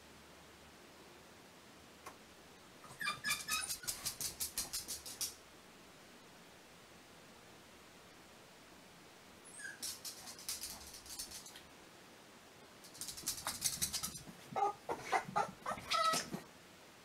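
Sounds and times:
dog whining in high squeaks: 2.8 - 4.0, 9.5 - 10.0, 14.6 - 16.4.

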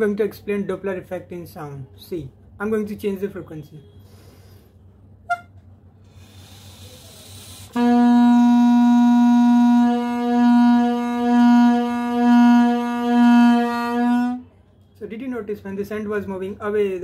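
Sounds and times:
balloon horn note: 5.2 - 5.6, 7.5 - 14.5.

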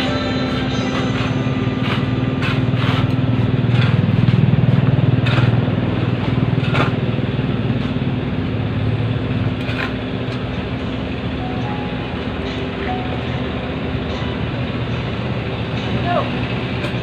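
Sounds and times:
engine humming: 0.0 - 17.0
shovels scraping into gravel: 0.1 - 4.4.

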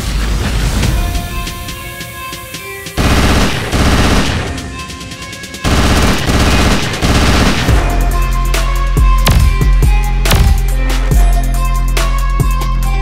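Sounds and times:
background music: 0.0 - 13.0
automatic gunfire bursts: 3.0 - 4.8, 5.7 - 8.0.

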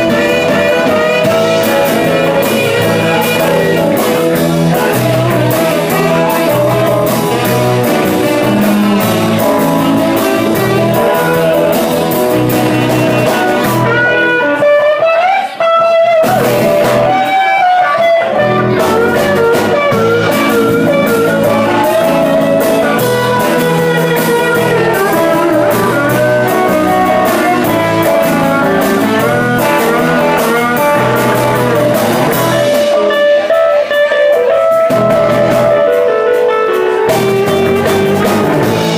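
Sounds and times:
electric guitar lead: 0.0 - 38.9
live blues band playing: 0.0 - 38.9
saxophone: 0.0 - 38.9.

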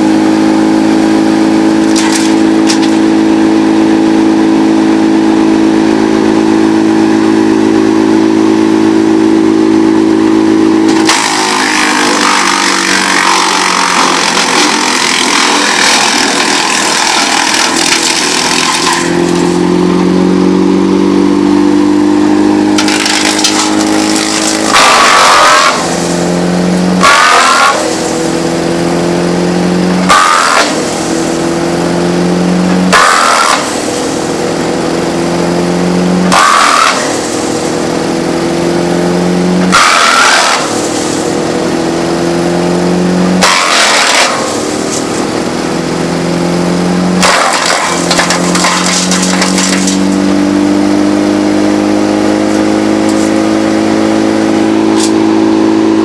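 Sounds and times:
wood chipper engine running: 0.0 - 56.0
wood chipping crunch: 1.8 - 3.0, 10.9 - 19.6, 22.8 - 29.0, 29.8 - 31.5, 32.9 - 34.5, 36.2 - 37.9, 39.6 - 41.8, 43.4 - 45.4, 47.1 - 50.3.

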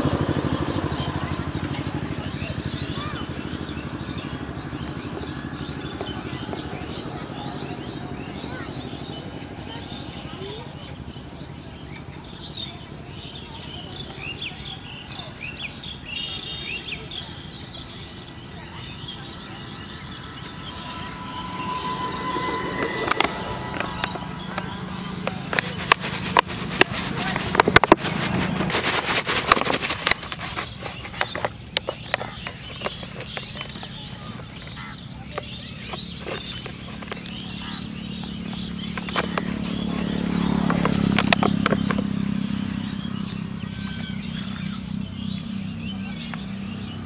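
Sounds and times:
low outdoor background noise: 0.0 - 47.0
small birds chirping: 0.0 - 47.0
plastic bottle crackling: 23.8 - 37.4.

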